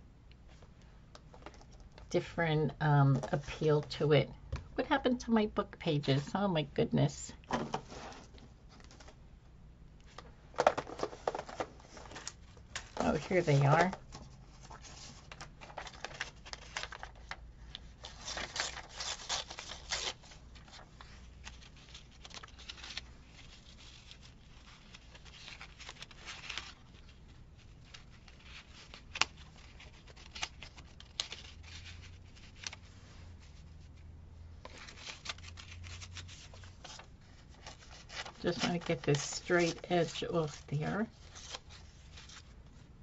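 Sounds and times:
paper rustling and ripping: 10.9 - 17.4, 18.0 - 33.6, 34.6 - 42.5.

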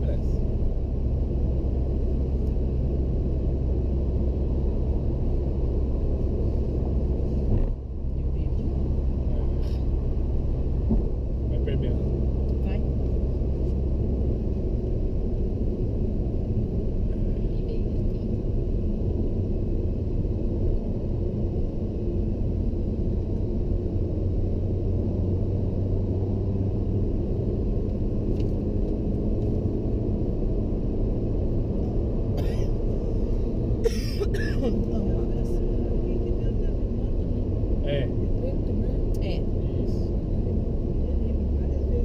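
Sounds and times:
car cabin road and engine rumble: 0.0 - 42.0.

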